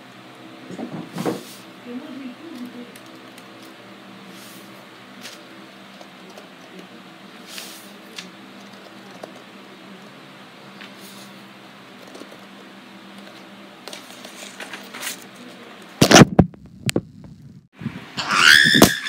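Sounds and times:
loud thumps: 0:16.0 - 0:17.6.

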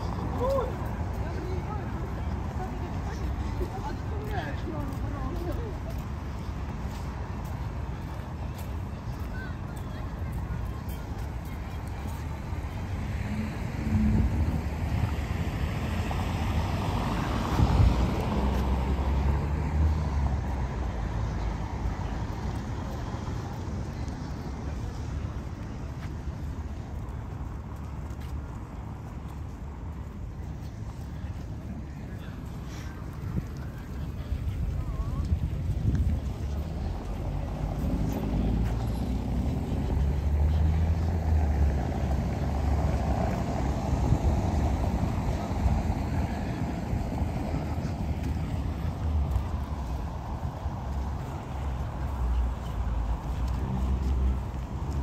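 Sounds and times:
cars driving past: 0:00.0 - 0:55.0
low rumble of city traffic: 0:00.0 - 0:55.0
vehicle engine hum: 0:00.0 - 0:55.0.

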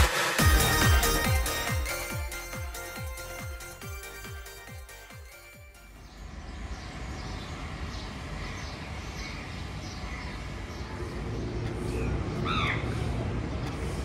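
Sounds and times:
small birds chirping: 0:04.0 - 0:14.0
low rumble of traffic: 0:05.8 - 0:14.0.

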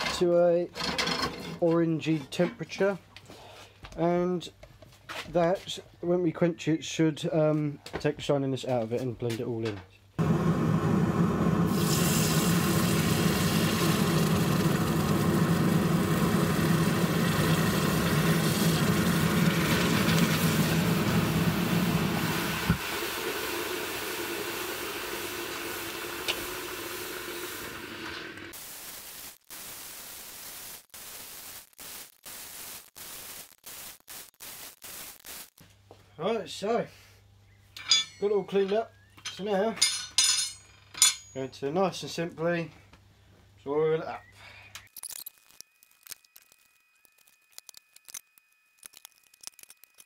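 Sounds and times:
hot steel sizzling in water: 0:11.7 - 0:35.6.

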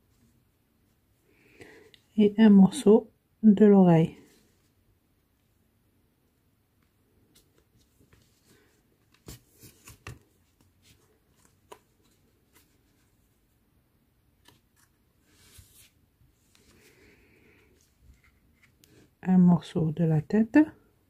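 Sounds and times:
soft fabric rustles: 0:14.5 - 0:19.2.

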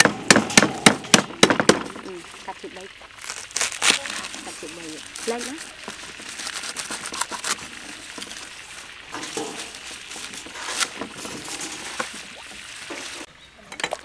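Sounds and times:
leaves rustling: 0:00.5 - 0:13.4.

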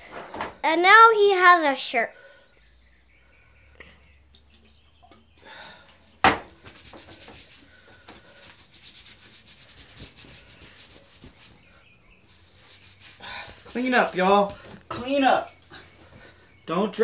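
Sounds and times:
cloth rubbing over skin: 0:06.6 - 0:14.5.

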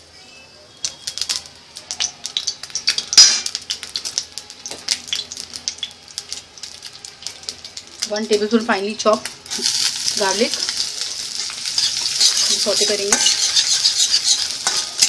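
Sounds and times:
hot oil crackling and spitting: 0:00.8 - 0:15.0
metal spatula scraping pan: 0:11.4 - 0:15.0.

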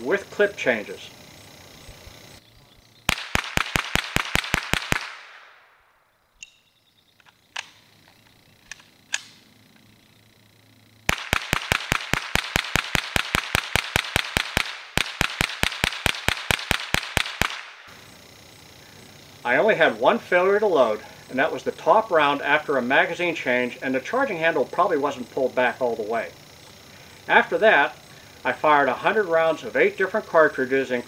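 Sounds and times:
rifle firing rapid shots: 0:03.1 - 0:05.6, 0:11.1 - 0:17.9
magazine change clicks: 0:07.2 - 0:09.4.

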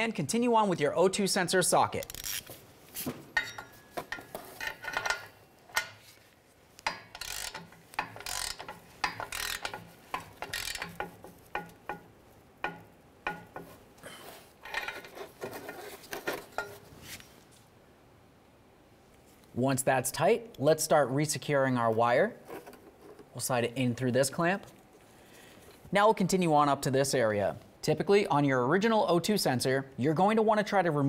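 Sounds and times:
ratchet clicking: 0:02.0 - 0:02.5, 0:06.8 - 0:13.6.

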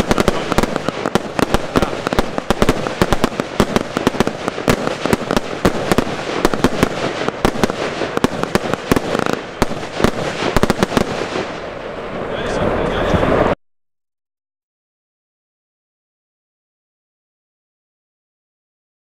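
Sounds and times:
fireworks pops and bangs: 0:00.0 - 0:11.7.

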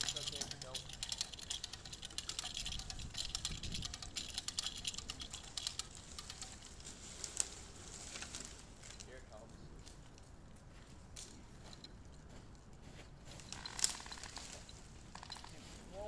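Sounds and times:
hand winch ratcheting: 0:00.0 - 0:06.9, 0:13.5 - 0:15.6.

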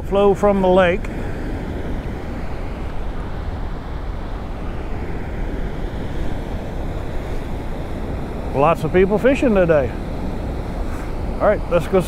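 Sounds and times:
water rushing from dam gates: 0:02.5 - 0:12.0.

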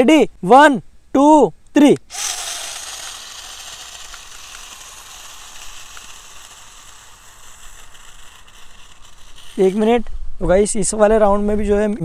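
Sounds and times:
toy car electric motors whirring: 0:02.1 - 0:10.1.

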